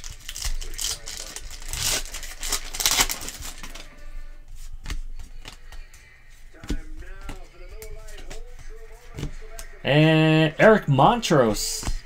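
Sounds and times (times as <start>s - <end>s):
foil wrapper crinkling: 0.0s - 3.9s.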